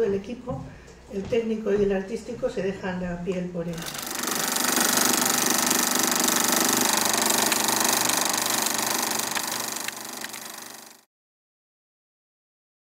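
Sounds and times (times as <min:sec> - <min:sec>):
film projector clattering: 0:03.7 - 0:11.1.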